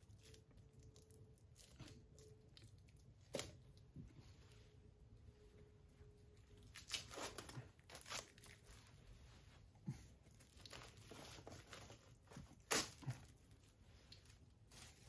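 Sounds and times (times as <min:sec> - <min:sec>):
packaging crinkling and tearing: 0:06.6 - 0:08.9, 0:10.3 - 0:15.0.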